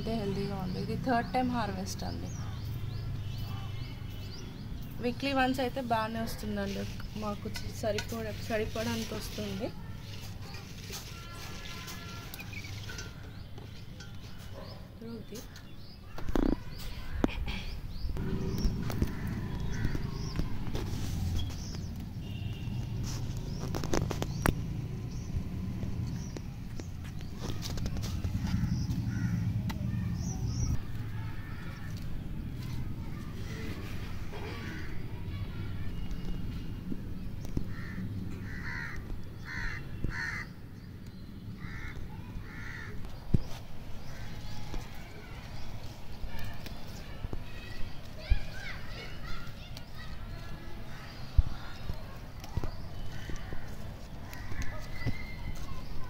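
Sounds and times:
birds calling: 0:00.0 - 0:56.0
crow cawing: 0:18.9 - 0:20.4, 0:28.5 - 0:29.4, 0:37.7 - 0:40.5, 0:41.6 - 0:43.0.

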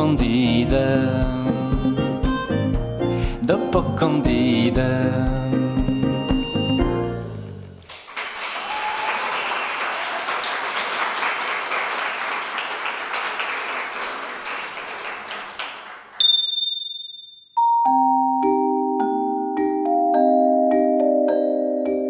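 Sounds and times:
audience applauding: 0:07.8 - 0:16.2
gentle vibraphone tune: 0:17.6 - 0:22.0.

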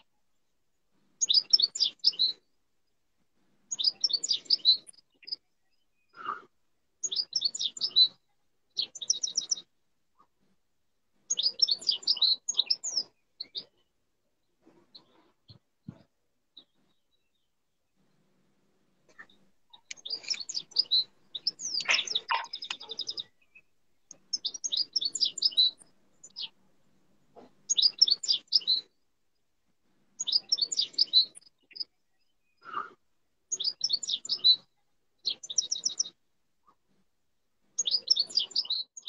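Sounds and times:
bird chirping: 0:01.2 - 0:02.4, 0:03.7 - 0:06.3, 0:07.0 - 0:09.7, 0:11.3 - 0:13.9, 0:19.1 - 0:26.6, 0:27.4 - 0:28.9, 0:30.2 - 0:32.6, 0:33.5 - 0:36.2, 0:37.8 - 0:39.0.

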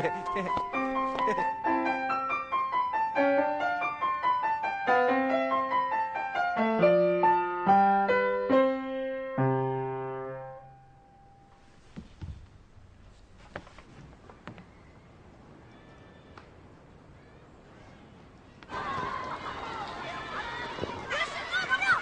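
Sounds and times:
gentle piano melody: 0:00.0 - 0:11.8.

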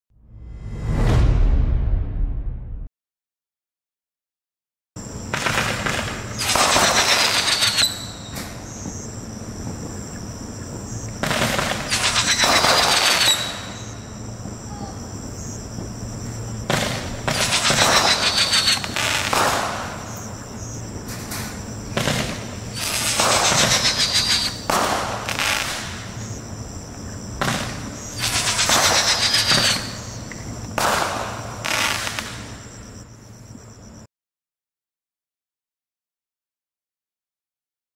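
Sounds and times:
sharp firework pops: 0:05.3 - 0:09.0, 0:11.2 - 0:13.8, 0:16.6 - 0:20.2, 0:21.1 - 0:26.1, 0:27.4 - 0:32.6
roman candle whistling rush: 0:06.3 - 0:09.1, 0:11.8 - 0:14.4, 0:17.3 - 0:19.3, 0:22.6 - 0:24.7, 0:28.0 - 0:30.4.

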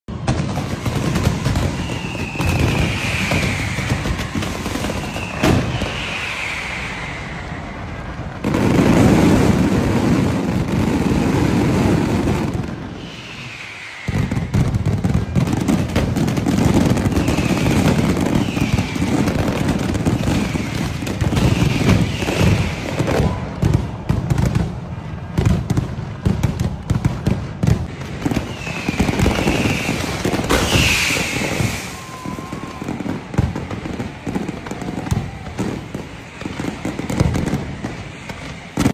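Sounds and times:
pyrotechnic bangs and crackling: 0:00.1 - 0:38.9
high falling whistles: 0:00.6 - 0:09.3, 0:12.4 - 0:16.0, 0:16.6 - 0:23.7, 0:28.2 - 0:38.9.

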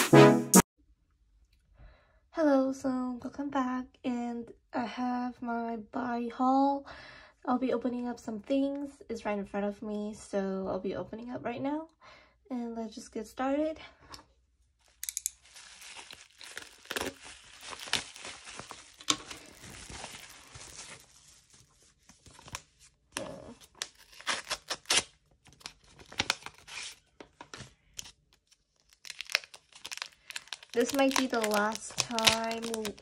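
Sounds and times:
crinkling and tearing envelopes: 0:14.8 - 0:33.0
sharp crackles: 0:29.1 - 0:33.0.

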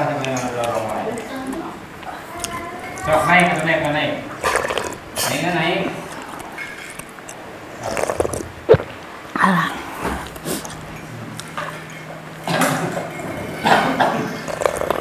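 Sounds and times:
eating and handling noises: 0:00.0 - 0:15.0
faint steady hum: 0:00.0 - 0:15.0.

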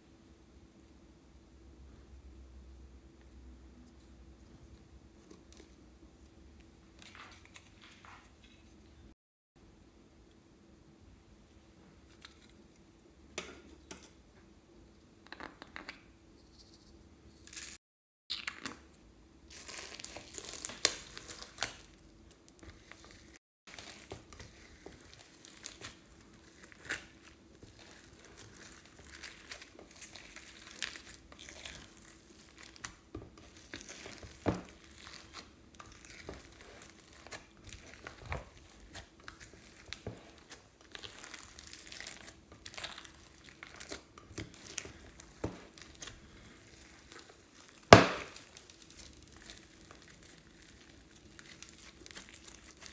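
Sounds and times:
slime crackling being kneaded: 0:19.5 - 0:52.9.

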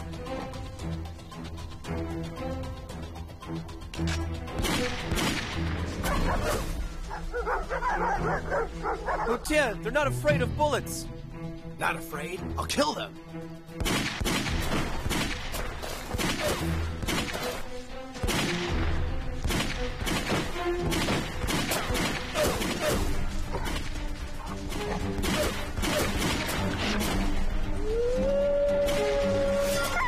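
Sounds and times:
music: 0:00.0 - 0:30.0.

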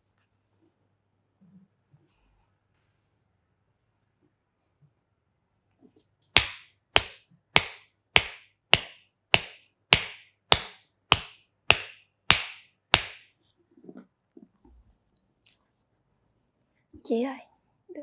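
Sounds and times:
hand slaps on skin: 0:06.4 - 0:13.3.

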